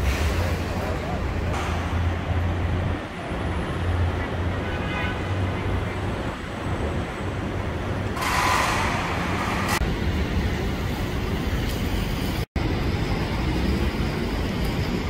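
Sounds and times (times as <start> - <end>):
rumble of passing traffic: 0.0 - 15.0.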